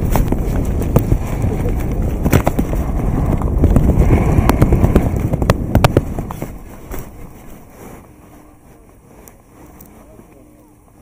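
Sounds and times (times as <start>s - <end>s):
skis scraping over hard snow: 0.0s - 10.4s
wind rumbling on microphone: 0.0s - 11.0s.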